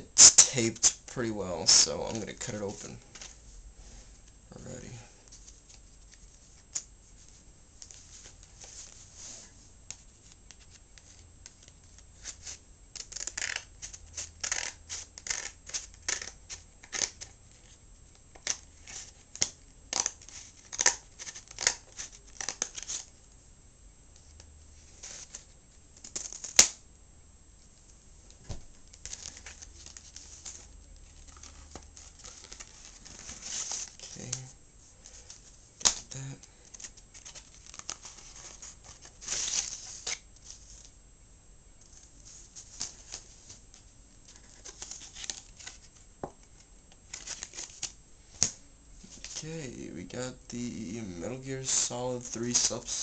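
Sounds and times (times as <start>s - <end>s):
paper rustling and tearing: 29.0s - 34.5s.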